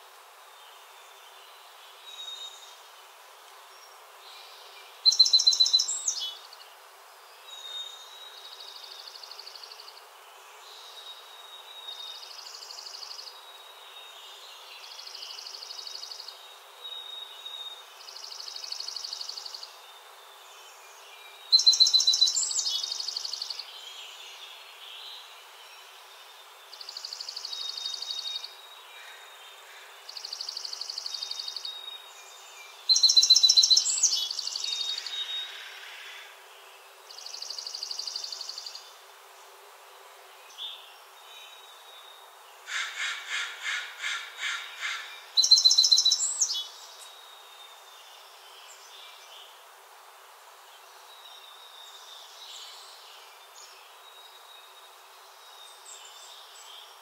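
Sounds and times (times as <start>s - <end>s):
songbird singing trilled phrases: 5.0s - 6.4s, 21.5s - 23.7s, 30.3s - 35.6s, 44.0s - 47.2s.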